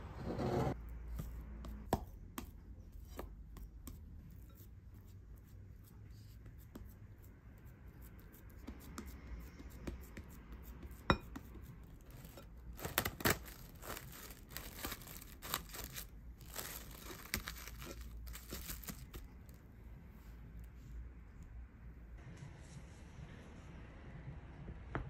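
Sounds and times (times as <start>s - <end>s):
spatula scraping bowl: 0.0s - 0.8s
cling film crinkling: 12.1s - 19.6s.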